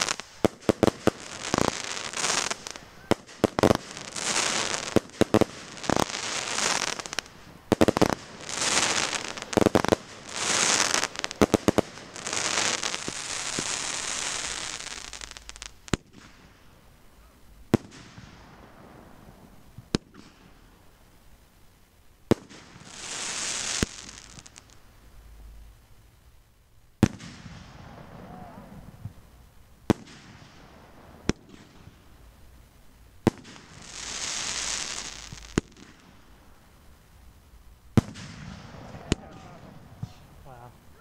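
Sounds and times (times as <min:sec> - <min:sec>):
scattered firework pops: 0:00.0 - 0:16.6, 0:17.7 - 0:18.6, 0:19.7 - 0:20.7, 0:22.3 - 0:24.8, 0:27.0 - 0:32.2, 0:33.2 - 0:36.3, 0:37.9 - 0:40.3
firework bangs: 0:00.0 - 0:16.8, 0:17.7 - 0:20.7, 0:22.3 - 0:24.8, 0:27.0 - 0:32.2, 0:33.2 - 0:36.7, 0:37.9 - 0:41.0
hissing crackling bursts: 0:00.0 - 0:41.0.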